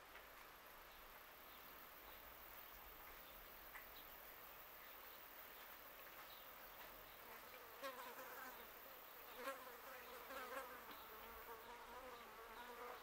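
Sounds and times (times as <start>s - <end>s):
insect buzzing: 7.2s - 13.0s.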